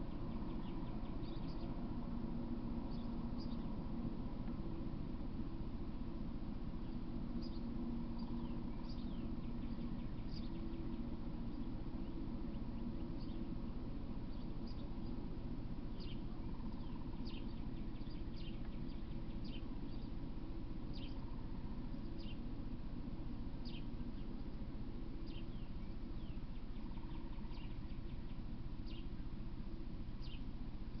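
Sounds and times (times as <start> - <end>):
steady low hum: 0.0 - 31.0
bird chirping: 0.1 - 1.9, 2.8 - 3.7, 6.8 - 13.6, 14.2 - 22.5, 23.6 - 24.6, 25.2 - 29.3, 30.2 - 30.6.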